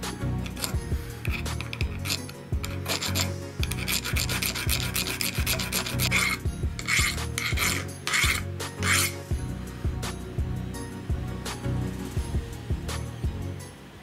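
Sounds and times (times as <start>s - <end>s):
hand file rasping on metal: 0.4s - 9.3s.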